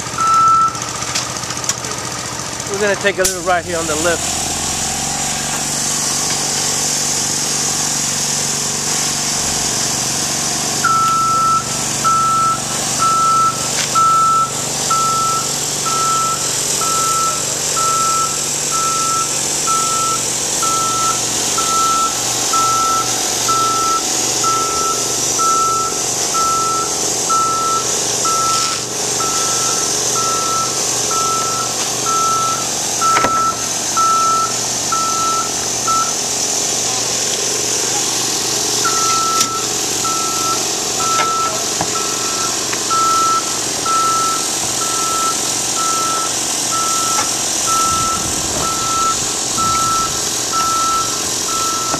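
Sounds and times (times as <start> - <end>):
lift motion alarm beeping: 0.0 - 1.0, 10.8 - 36.3, 38.8 - 51.9
lift engine running: 0.0 - 51.9.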